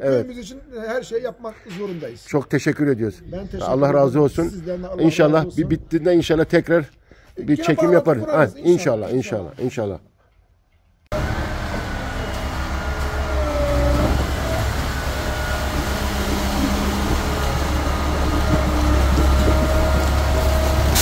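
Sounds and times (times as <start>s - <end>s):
diesel engines rumbling: 11.1s - 21.0s.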